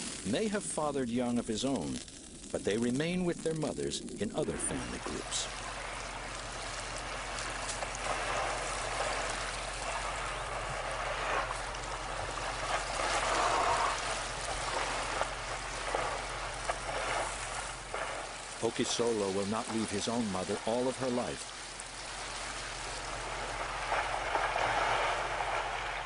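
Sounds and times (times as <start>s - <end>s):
water splashing around whale: 4.3s - 26.0s.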